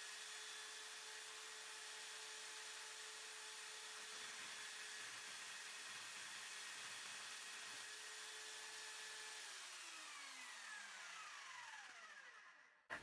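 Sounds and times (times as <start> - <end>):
bandsaw running: 6.4 - 13.0.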